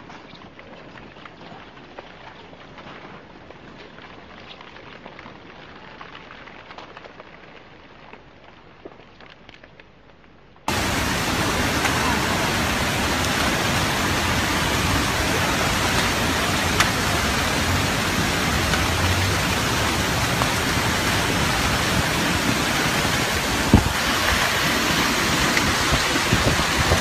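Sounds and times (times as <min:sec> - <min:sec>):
heavy rain pouring: 0:10.7 - 0:27.0.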